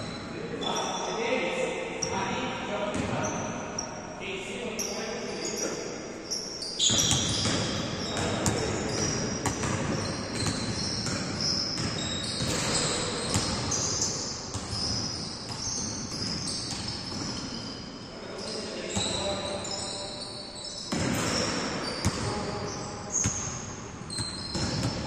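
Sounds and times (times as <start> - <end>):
sneakers squeaking: 0.0 - 1.4, 2.0 - 4.0, 4.7 - 25.0
basketball bouncing on floor: 9.4 - 13.6.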